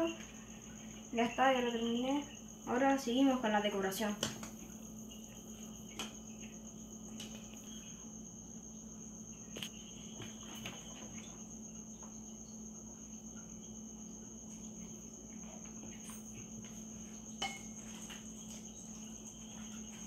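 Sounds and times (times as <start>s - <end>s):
cricket trilling: 0.0s - 20.0s
low steady hum: 0.0s - 20.0s.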